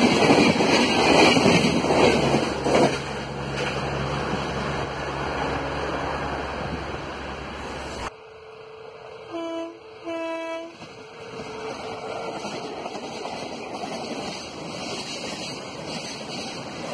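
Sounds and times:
freight train passing: 0.0s - 16.9s
locomotive horn blasts: 9.3s - 10.8s.

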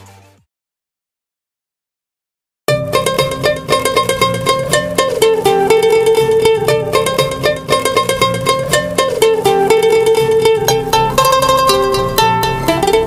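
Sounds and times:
plucked string instrument music: 2.7s - 13.0s.

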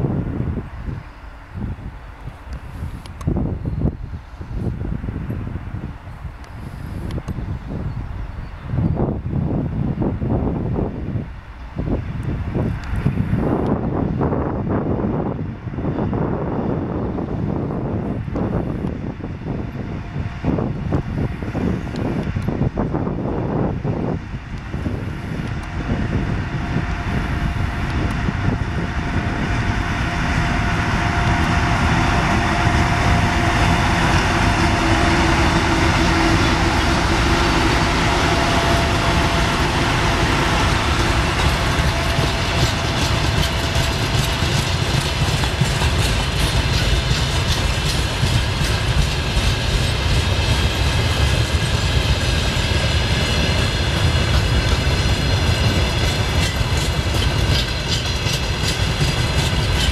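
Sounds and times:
diesel locomotive rumble: 0.0s - 59.9s
wheels clacking over rail joints: 31.3s - 59.9s.

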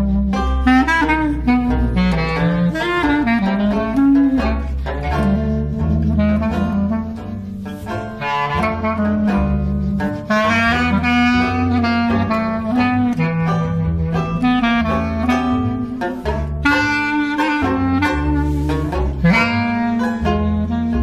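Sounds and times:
clarinet playing jazz melody: 0.0s - 21.0s
plucked double bass: 0.0s - 21.0s
strummed banjo: 0.0s - 21.0s.

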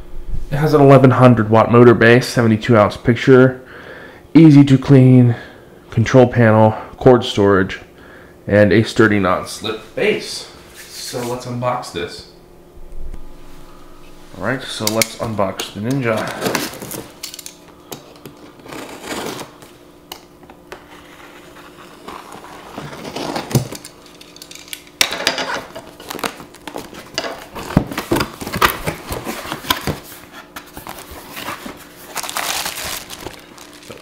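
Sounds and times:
cardboard scraping and rustling: 15.3s - 17.2s, 18.4s - 19.7s, 20.8s - 23.8s, 25.5s - 34.0s
plastic wrap crinkling: 21.6s - 30.0s, 30.6s - 34.0s.

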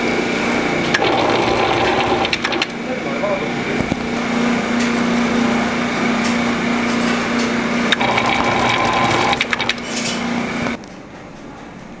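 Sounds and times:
higher machine whine: 0.3s - 6.8s, 7.4s - 10.8s
machine motor hum: 0.6s - 4.7s, 7.6s - 10.8s
sharp clicks and knocks: 1.9s - 2.8s, 7.9s - 10.2s.

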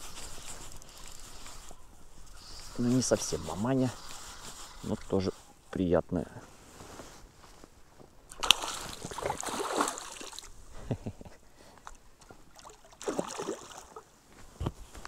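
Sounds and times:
water splashing against boat: 8.3s - 10.5s.

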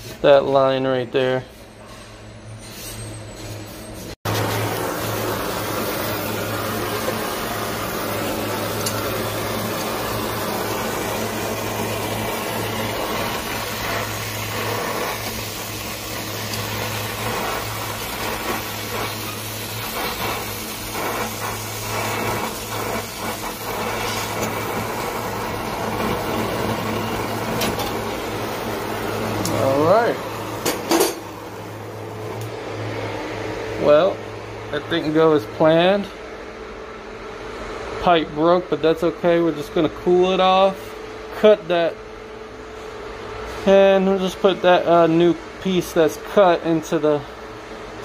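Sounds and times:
torch flame hissing: 4.2s - 32.6s.

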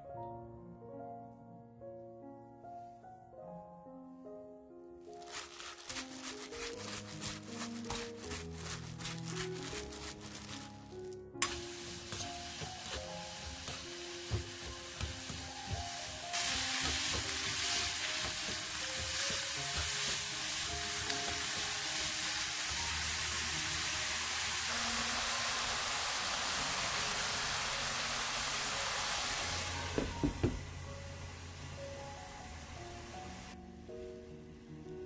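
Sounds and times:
background music: 0.0s - 35.0s
vegetables sizzling in oil: 5.2s - 10.8s, 11.4s - 33.6s.

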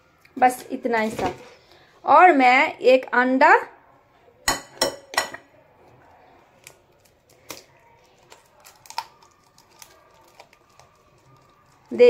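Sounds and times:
egg cracking on bowl rim: 6.6s - 10.9s.

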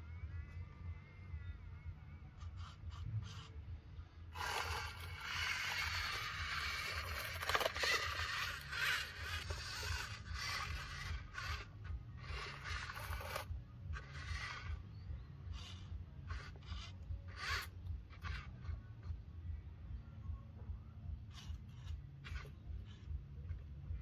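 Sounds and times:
low steady hum: 0.0s - 24.0s
scraping through loose grit: 4.4s - 14.8s.

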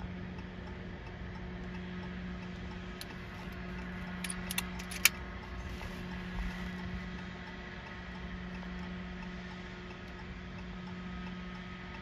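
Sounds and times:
steady low hum: 0.0s - 12.0s
faint handling clicks: 3.0s - 5.2s.

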